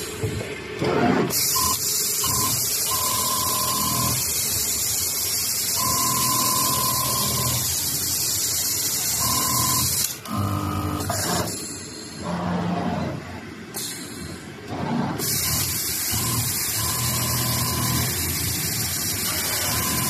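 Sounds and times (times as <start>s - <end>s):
sewing machine high hiss: 1.3s - 12.3s, 15.2s - 20.0s.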